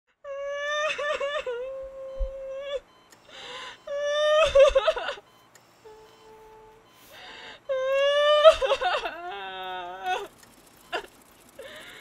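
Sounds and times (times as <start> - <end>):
woman crying loudly: 0.3 - 2.8, 3.9 - 5.2, 7.7 - 10.3
sobbing breath: 2.6 - 3.9, 5.9 - 10.3.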